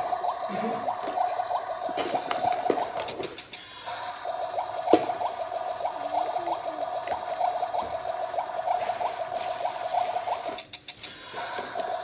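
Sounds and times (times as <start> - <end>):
toy electronic bubbling blips: 0.0 - 12.0.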